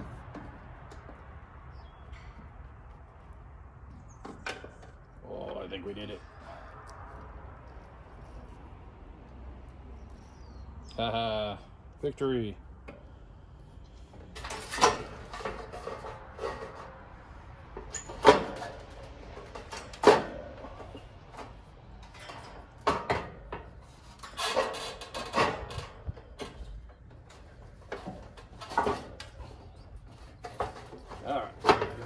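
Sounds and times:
scraping and rattling: 13.9 - 32.0.

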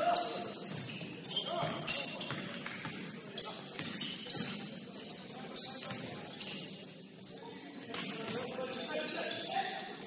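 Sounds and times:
gym hubbub: 0.0 - 10.0
shoes squeaking on court floor: 0.0 - 10.0.

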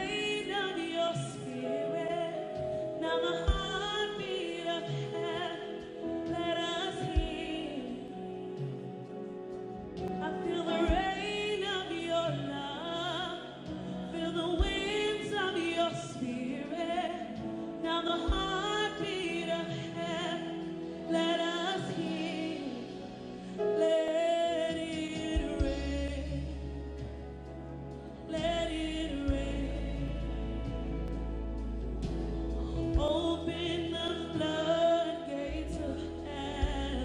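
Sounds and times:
woman singing with vibrato: 0.0 - 8.8, 10.2 - 27.1, 28.3 - 31.1, 32.6 - 37.0
keyboards: 0.0 - 37.0
sustained bass notes: 25.3 - 37.0.

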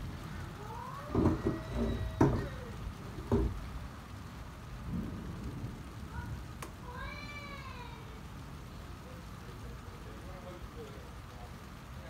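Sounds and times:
low background noise: 0.0 - 12.0.

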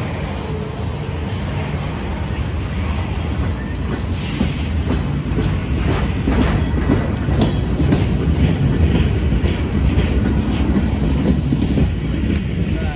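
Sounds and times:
train wheels rumbling on rail: 0.0 - 12.9
wheels clicking over rail joints: 3.0 - 12.9.

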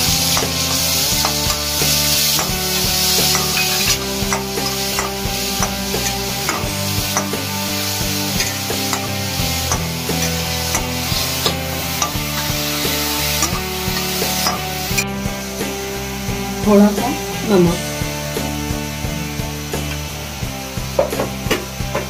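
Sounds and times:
onion sizzling in oil: 0.0 - 21.9
metal spatula scraping pan: 0.2 - 15.1.

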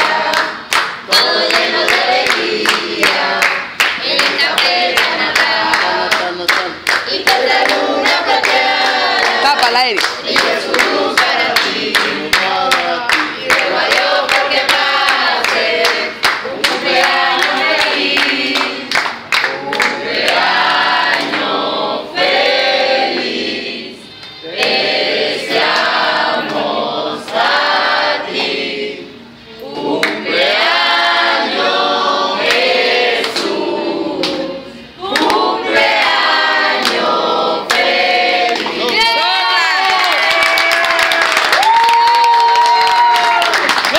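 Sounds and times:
hand claps: 0.0 - 7.8, 9.2 - 20.5, 21.1 - 21.5, 35.1 - 36.1, 39.8 - 43.9
group singing birthday song: 0.0 - 39.8.

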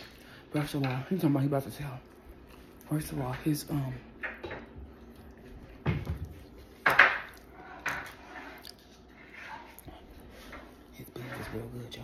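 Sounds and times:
chewing: 2.0 - 2.9, 4.8 - 7.8, 8.4 - 10.9.

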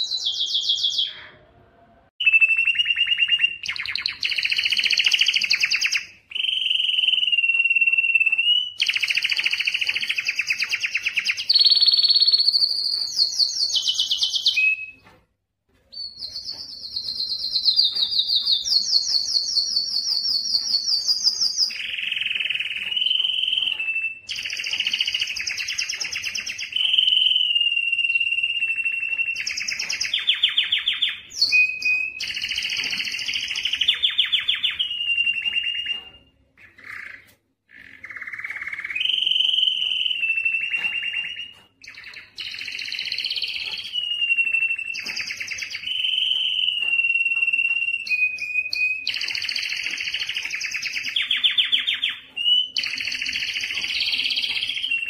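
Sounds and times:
canary singing trills and whistles: 0.0 - 1.4, 2.2 - 15.2, 15.8 - 55.0.

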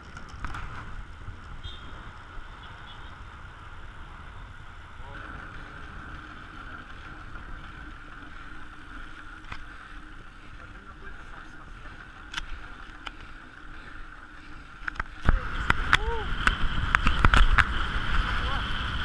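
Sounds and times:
bicycle tyre hum on asphalt: 0.0 - 19.0
wind rumbling on microphone: 0.0 - 19.0
faint clicks: 12.2 - 17.7.

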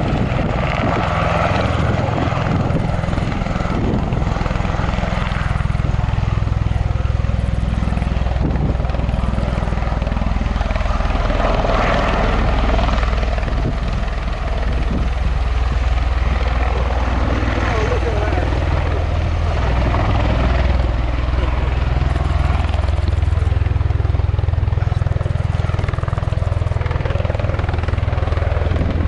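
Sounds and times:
turbine noise: 0.0 - 29.0.

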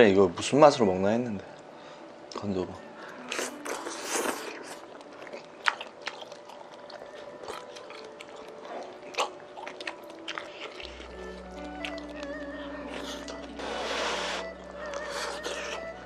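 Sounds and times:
chewing and lip smacking: 2.3 - 16.0
slurping broth and noodles: 3.3 - 5.0, 12.9 - 15.9.

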